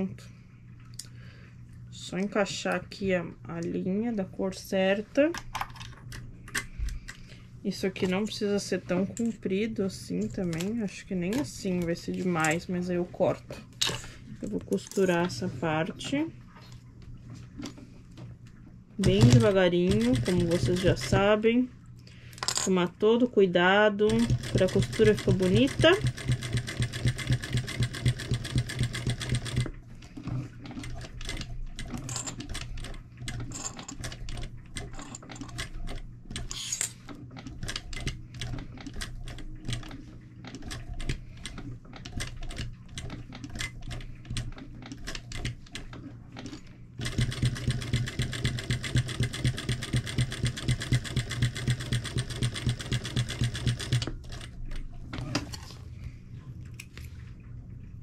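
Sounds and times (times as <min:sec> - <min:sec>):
sewing machine stitching: 0:19.0 - 0:21.4, 0:24.0 - 0:54.6.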